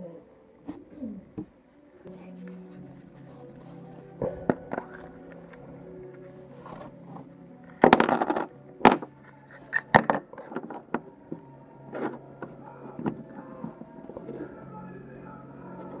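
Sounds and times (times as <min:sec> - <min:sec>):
plastic parts clattering on table: 0:07.8 - 0:09.1.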